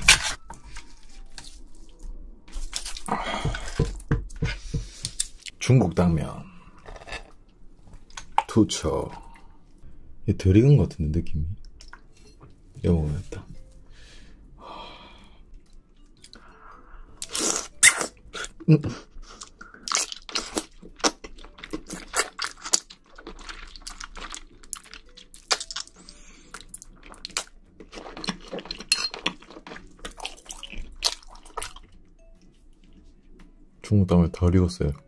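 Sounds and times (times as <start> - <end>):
crunchy wet chewing: 19.3 - 32.0.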